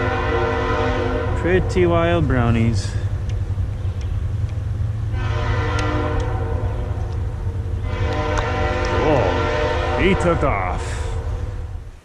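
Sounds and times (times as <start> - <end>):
long horn blast: 0.0 - 2.3, 5.1 - 11.7
low rumble: 0.0 - 12.0.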